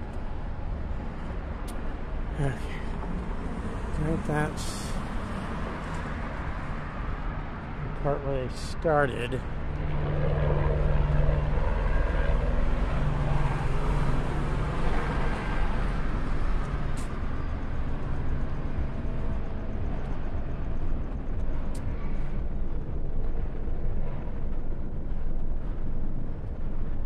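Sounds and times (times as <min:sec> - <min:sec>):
vehicle engine humming: 0:00.0 - 0:10.0.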